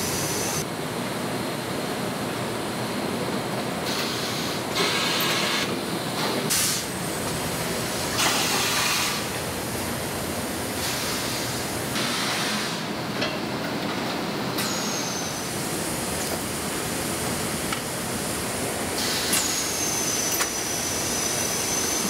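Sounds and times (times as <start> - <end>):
pressing machinery running: 0.0 - 22.0
presses venting hiss: 6.5 - 7.1, 7.8 - 9.3, 14.6 - 22.0.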